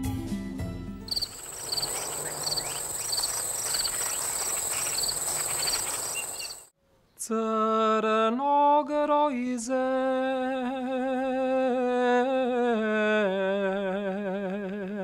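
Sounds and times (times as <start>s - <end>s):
insect chirps: 1.1s - 6.7s
insects trilling: 1.1s - 6.7s.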